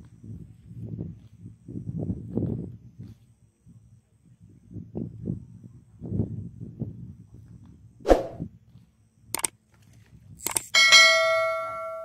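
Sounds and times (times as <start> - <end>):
bell chime: 10.8 - 12.0.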